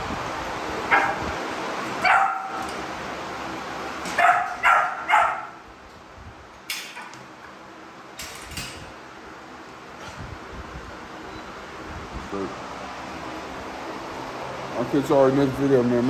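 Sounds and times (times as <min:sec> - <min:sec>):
dog barking: 0:00.9 - 0:01.2, 0:02.0 - 0:02.7, 0:04.1 - 0:05.6.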